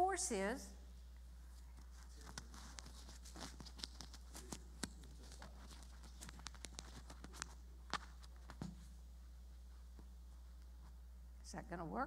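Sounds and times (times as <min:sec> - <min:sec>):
steady low hum: 0:00.0 - 0:12.0
microphone handling clicks and rubbing: 0:01.2 - 0:11.0.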